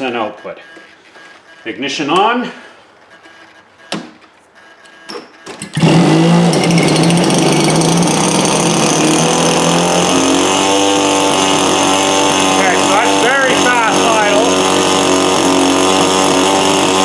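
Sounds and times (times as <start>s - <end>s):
small two-stroke engine idling: 5.6s - 17.0s.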